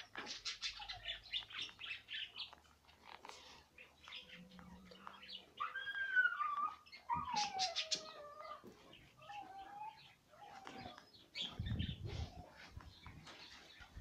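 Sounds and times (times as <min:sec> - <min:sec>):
pet crying: 0:05.6 - 0:11.0.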